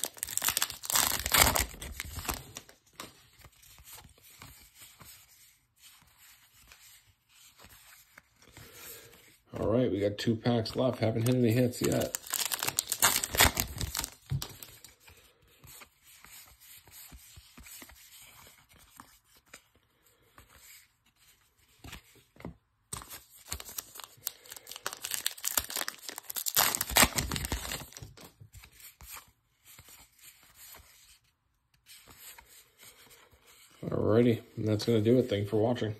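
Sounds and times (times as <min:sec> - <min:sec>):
wrapper crinkling and tearing: 0:00.0 - 0:02.8, 0:11.1 - 0:14.8, 0:23.4 - 0:28.3.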